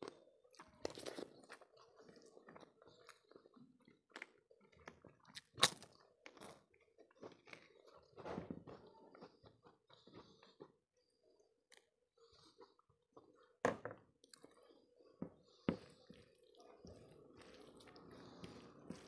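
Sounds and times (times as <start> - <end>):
fingers squishing rice: 15.5 - 19.0.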